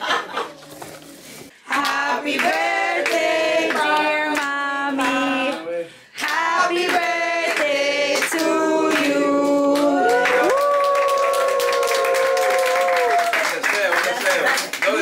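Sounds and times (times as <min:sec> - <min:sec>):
group singing unaccompanied: 0:01.6 - 0:10.2.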